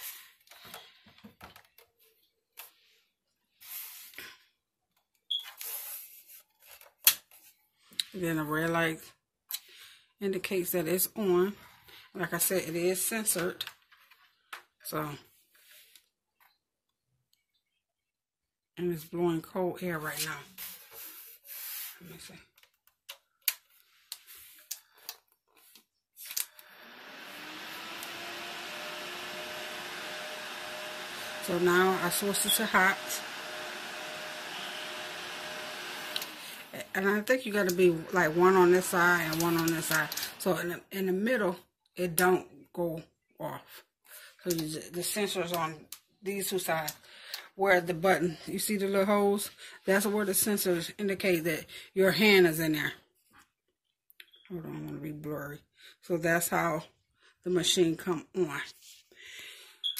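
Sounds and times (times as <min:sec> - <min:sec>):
nail dryer fan blowing air: 0:26.6 - 0:40.9.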